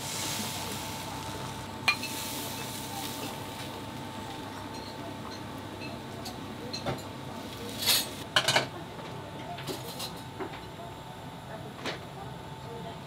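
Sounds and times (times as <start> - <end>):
steady background hum: 0.0 - 13.0
dishes and utensils clinking: 1.9 - 3.4, 4.7 - 8.7
dishes clattering: 4.7 - 7.1.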